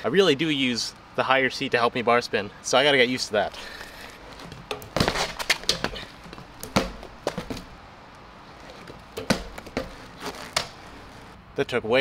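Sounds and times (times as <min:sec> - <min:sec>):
bike knocks and clacks: 0:04.4 - 0:07.8, 0:08.6 - 0:11.2.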